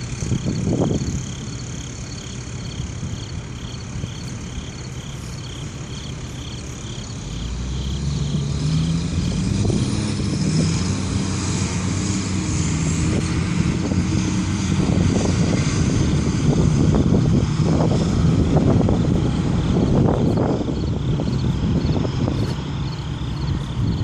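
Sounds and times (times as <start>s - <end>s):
heavy truck engine driving past: 0.0s - 24.0s
tyre and road noise: 0.0s - 24.0s.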